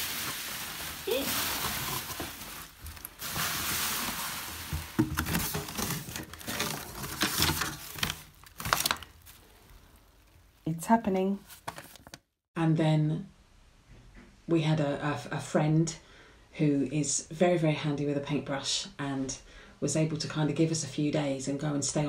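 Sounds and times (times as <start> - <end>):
cardboard rustling and scraping: 0.0 - 9.8, 11.3 - 12.3
bubble wrap crinkling: 0.0 - 12.3.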